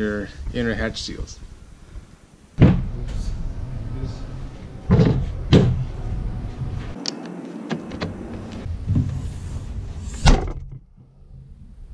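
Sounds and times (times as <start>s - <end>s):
heavy thump: 2.6s - 3.3s, 4.8s - 7.0s.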